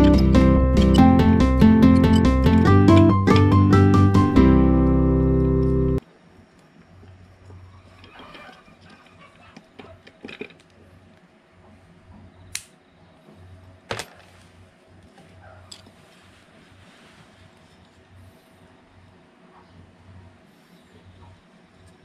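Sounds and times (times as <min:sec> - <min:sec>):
metal gear case clinking: 0:00.0 - 0:03.7
sharp clicks: 0:12.5 - 0:12.8.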